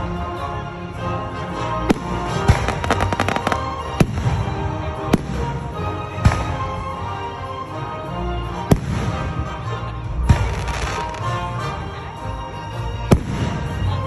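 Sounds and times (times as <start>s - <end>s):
music playing: 0.0s - 14.0s
firework bangs: 1.9s - 6.6s.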